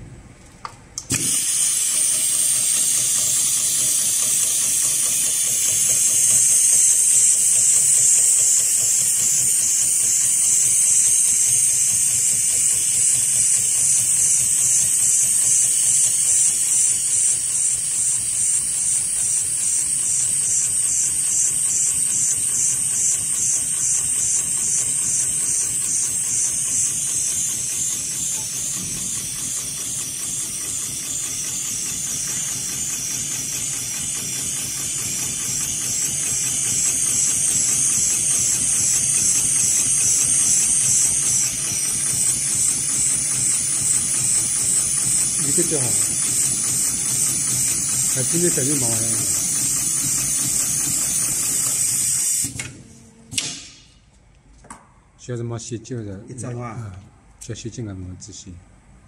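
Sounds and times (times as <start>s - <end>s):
loud hiss of air: 1.1s - 19.8s, 25.5s - 52.7s
sewing machine running: 1.1s - 52.6s.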